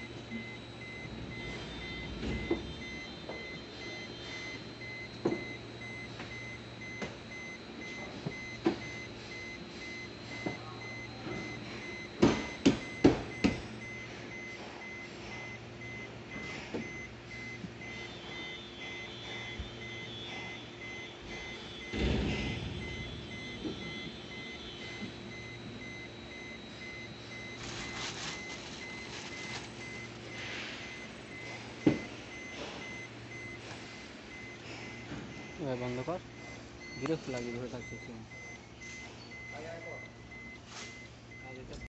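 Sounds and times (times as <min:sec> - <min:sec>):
high-pitched electronic beeping: 0:20.8 - 0:30.2
heavy thump: 0:21.8 - 0:24.2.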